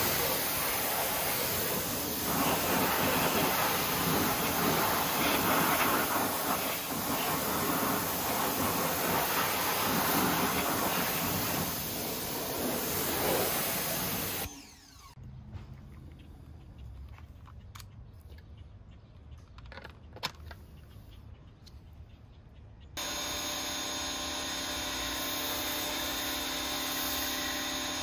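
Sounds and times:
pressure washer spraying a tire: 0:00.0 - 0:15.1, 0:23.0 - 0:28.0.

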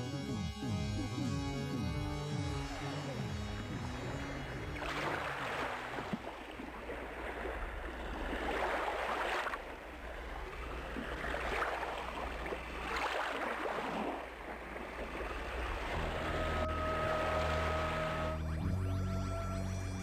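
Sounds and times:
surf washing onto beach: 0:04.8 - 0:16.3.

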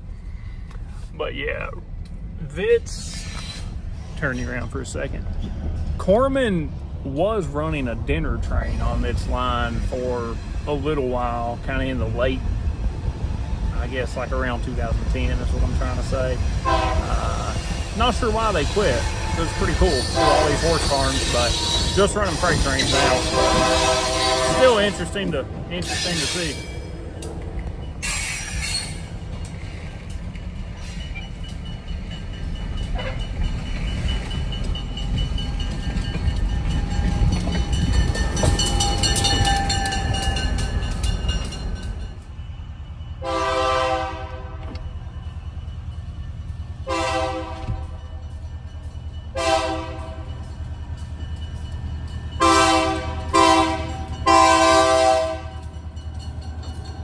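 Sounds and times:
truck road rumble: 0:00.0 - 0:57.0
train air horn blasts: 0:16.6 - 0:17.6, 0:18.9 - 0:26.6, 0:43.2 - 0:44.7, 0:46.8 - 0:48.0, 0:49.3 - 0:50.3, 0:52.4 - 0:55.7.

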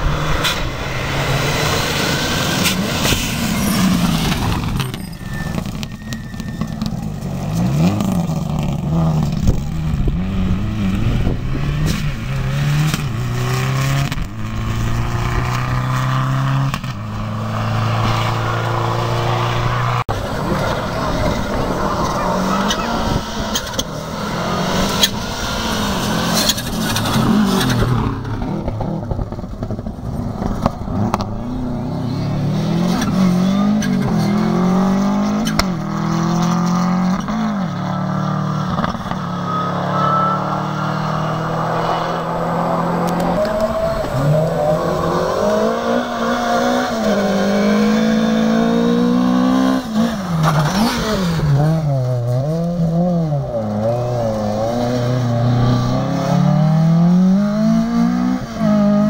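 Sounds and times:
rally car engine revving: 0:00.0 - 0:59.0.

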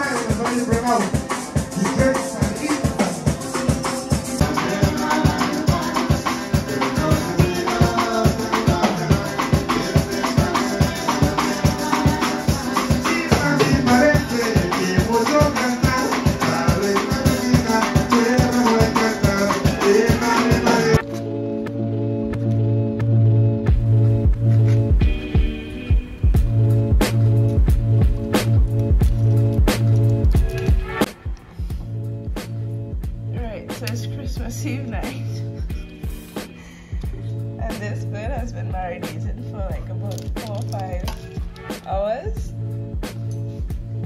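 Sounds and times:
drums: 0:00.0 - 0:21.0, 0:23.7 - 0:44.0
organ-like chords: 0:00.0 - 0:30.8
shaker rattling: 0:28.8 - 0:30.8, 0:39.6 - 0:42.2.

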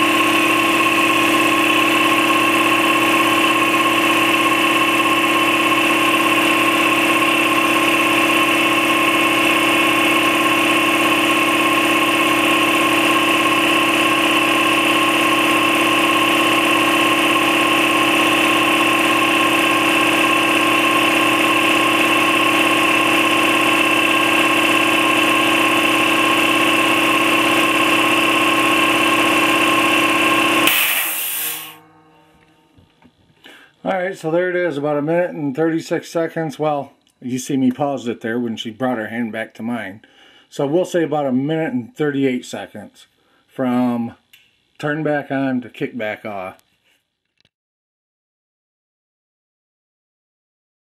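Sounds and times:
air compressor running: 0:00.0 - 0:33.8
brief hiss of air: 0:30.6 - 0:31.8.

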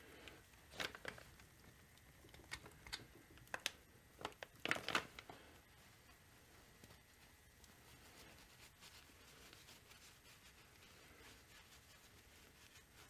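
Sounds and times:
rag rustling: 0:04.6 - 0:13.0.

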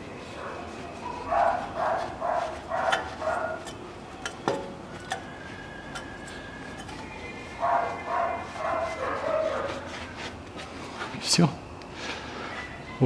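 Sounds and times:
dog barking: 0:00.4 - 0:03.7, 0:07.6 - 0:09.9.

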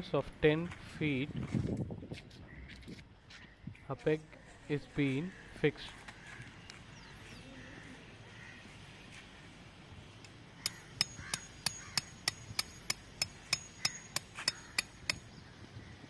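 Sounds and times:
hammer tapping peg into ground: 0:10.2 - 0:15.3.

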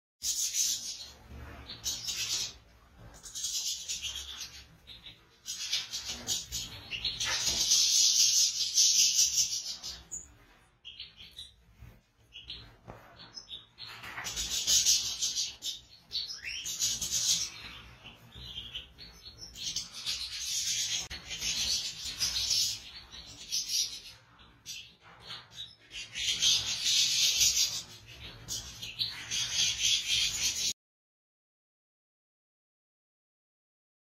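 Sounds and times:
goldfinches twittering and singing: 0:00.2 - 0:10.3, 0:12.3 - 0:30.7.

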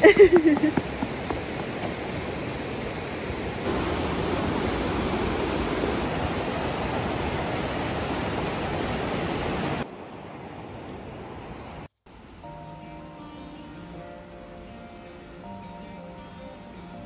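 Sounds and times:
river rushing over rapids: 0:00.4 - 0:11.8.

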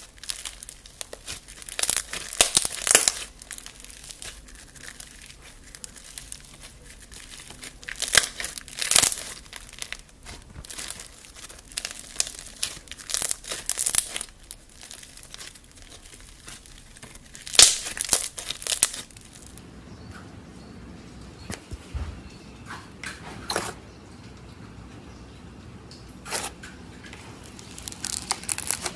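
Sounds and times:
slime squeezed and crackling: 0:00.0 - 0:19.6, 0:27.4 - 0:28.9.

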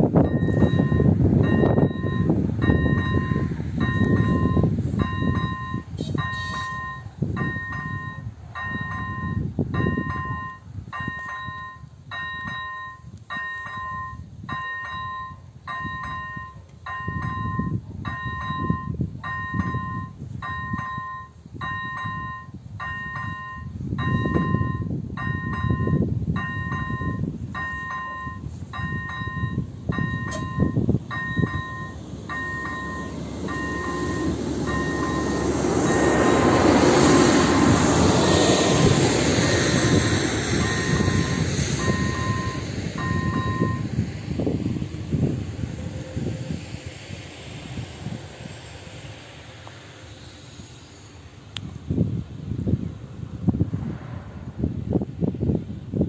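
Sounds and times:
diesel railcar arriving: 0:00.0 - 0:56.0
low rumble: 0:00.0 - 0:56.0
two-tone crossing bell ding: 0:00.3 - 0:36.3, 0:40.6 - 0:43.9.

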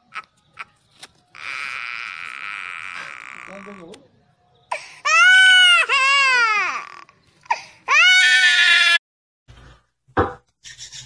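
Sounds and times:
sharp knock: 0:10.2 - 0:10.5.

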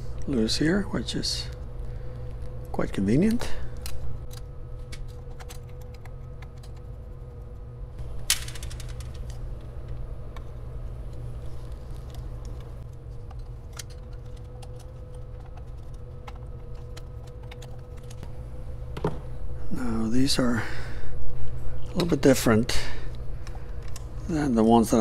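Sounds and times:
steady low hum: 0:00.0 - 0:25.0.

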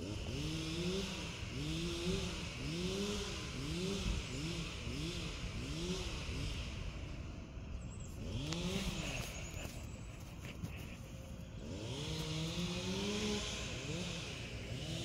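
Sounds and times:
machinery engine revving: 0:00.0 - 0:15.0.

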